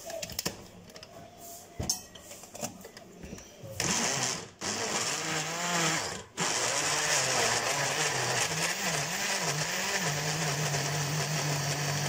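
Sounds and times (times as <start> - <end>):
blender running: 3.8 - 12.0.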